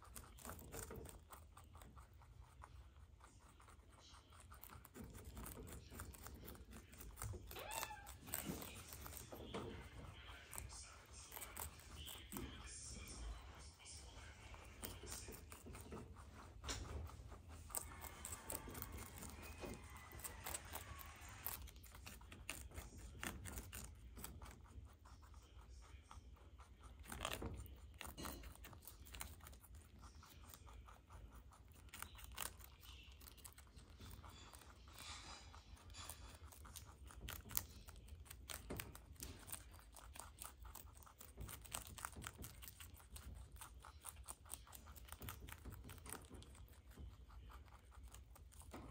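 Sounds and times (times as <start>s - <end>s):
rabbits munching leaves: 0.0s - 48.9s.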